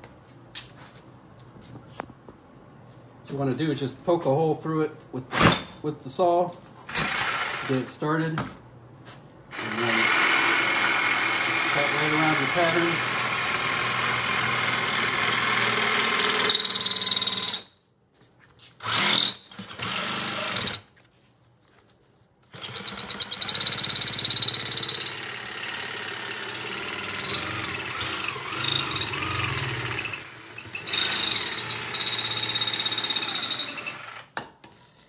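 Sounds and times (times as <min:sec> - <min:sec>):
jigsaw cutting ceiling tile: 0:06.9 - 0:08.2, 0:09.5 - 0:17.7, 0:18.8 - 0:21.0, 0:22.5 - 0:34.4.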